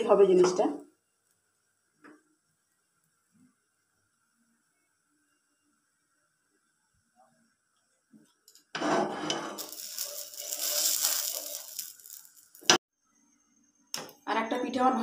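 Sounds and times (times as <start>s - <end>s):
spatula scraping frying pan: 8.7s - 12.2s.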